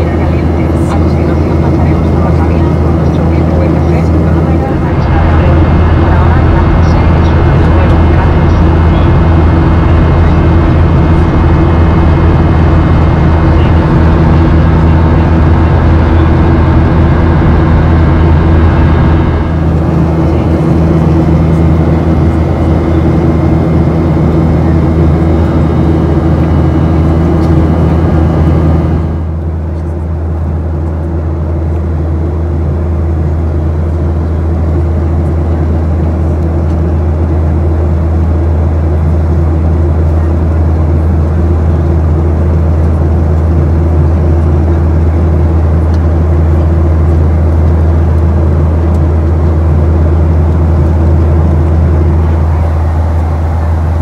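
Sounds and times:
airliner cabin engine drone: 0.0s - 54.0s.

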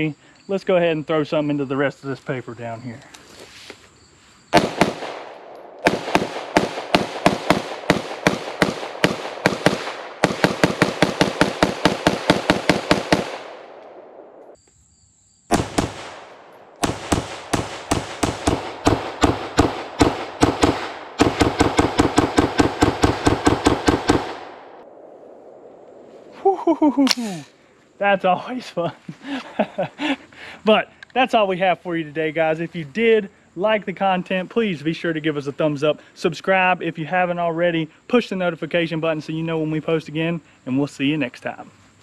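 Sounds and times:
rifle rapid fire: 4.6s - 14.2s, 15.5s - 24.8s.

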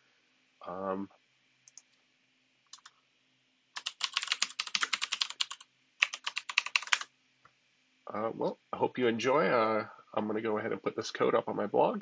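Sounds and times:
typing on computer keyboard: 3.8s - 7.1s.

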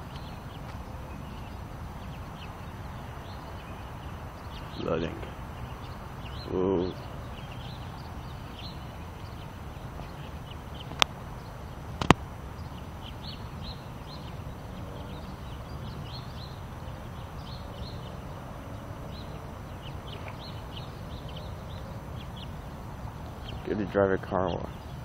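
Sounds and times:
small birds chirping: 0.0s - 25.0s
sharp click: 12.0s - 12.2s.

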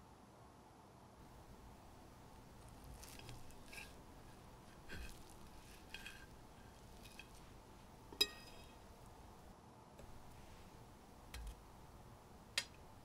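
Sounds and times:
knife cutting and scraping pie: 2.5s - 9.0s.

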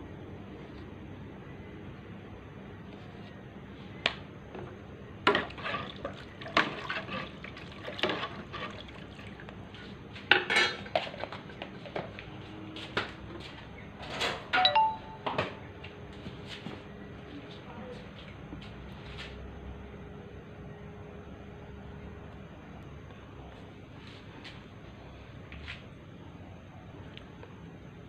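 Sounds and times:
liquid sloshing: 5.3s - 9.5s.

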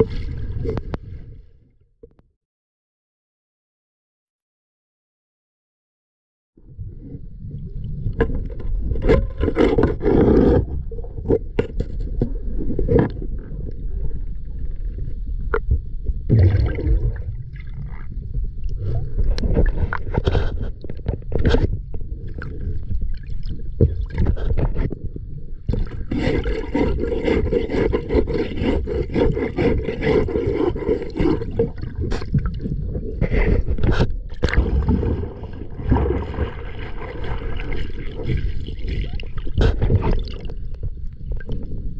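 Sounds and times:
underwater rumble: 0.0s - 2.2s, 6.6s - 41.9s
knocks and scrapes on hull: 8.0s - 13.7s, 18.3s - 41.9s.

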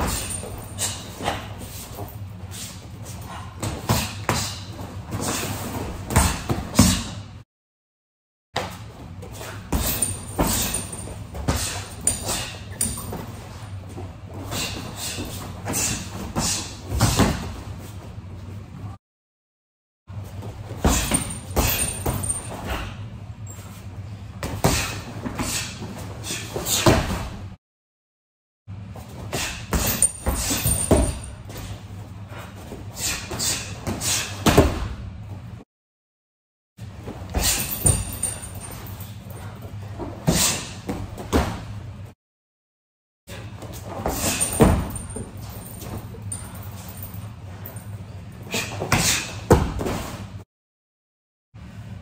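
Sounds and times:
punches and kicks on heavy bag: 3.5s - 7.2s, 9.4s - 13.0s, 14.5s - 17.6s, 20.8s - 23.0s, 24.4s - 25.8s, 26.6s - 27.4s, 29.3s - 31.5s, 33.1s - 35.0s, 37.3s - 38.5s, 44.0s - 45.5s, 48.5s - 50.1s.

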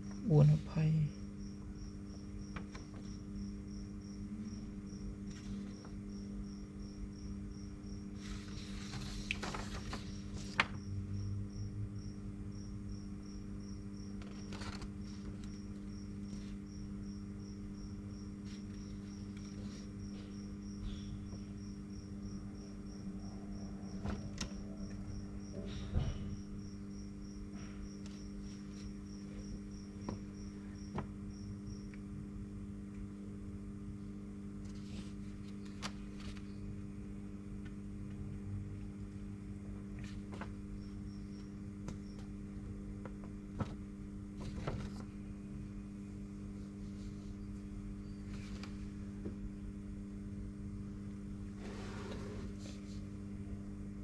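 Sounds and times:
steady electrical hum: 0.0s - 54.0s
paper sheets crinkling: 8.2s - 10.8s, 14.2s - 16.6s, 34.6s - 36.6s.

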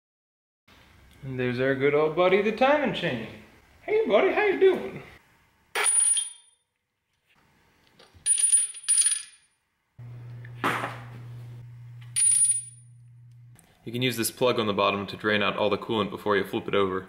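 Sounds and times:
metal tools clinking: 5.8s - 6.5s, 8.2s - 9.4s
low steady hum: 8.2s - 17.0s.

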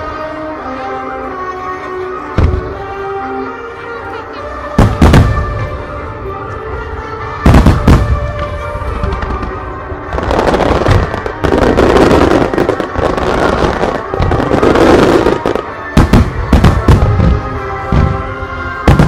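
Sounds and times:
background music: 0.0s - 19.0s
fireworks bursting with loud bangs: 4.8s - 5.8s, 7.4s - 19.0s
fireworks crackling and rumbling: 4.8s - 6.2s, 7.4s - 19.0s.

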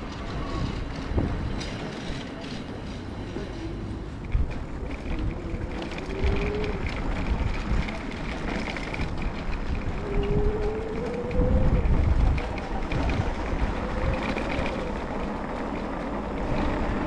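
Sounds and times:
road rumble and traffic: 0.0s - 17.0s
wind buffeting microphone: 0.0s - 17.0s.

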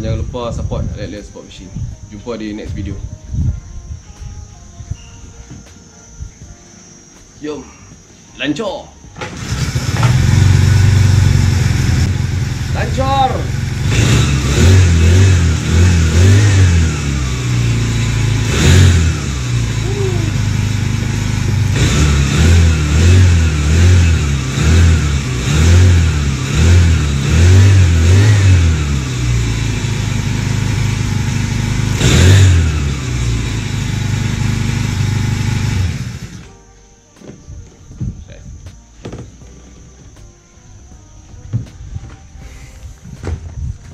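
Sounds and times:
small engine revving: 9.2s - 36.5s.

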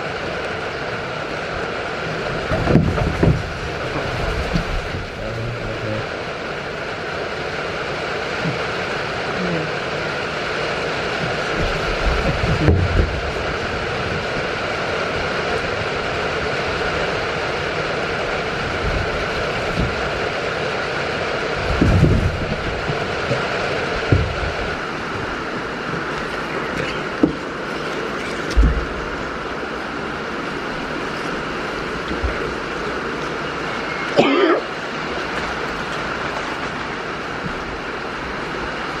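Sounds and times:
rain hissing: 0.0s - 39.0s
dull thumps: 2.4s - 5.6s, 21.6s - 27.5s, 28.4s - 29.2s.

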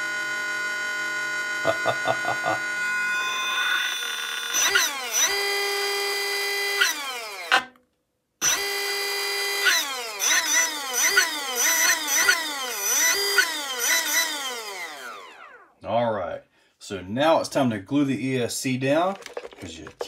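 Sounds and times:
electric motor whine: 0.0s - 7.6s, 8.4s - 15.7s.

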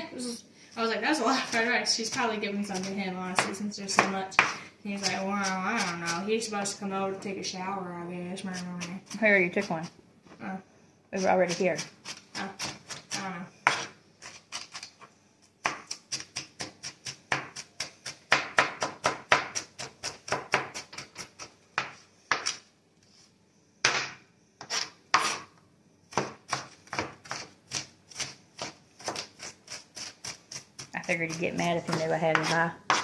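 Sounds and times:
knife chopping on cutting board: 15.6s - 22.6s, 23.8s - 25.5s, 26.1s - 33.0s.

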